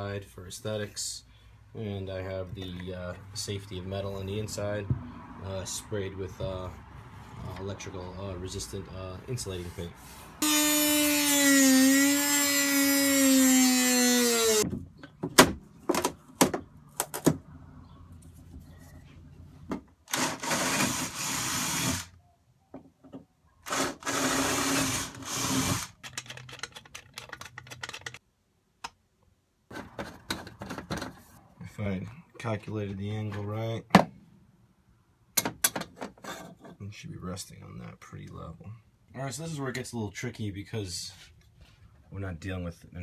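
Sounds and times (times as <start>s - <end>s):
cordless drill running: 20.1s - 22.1s, 23.7s - 25.9s.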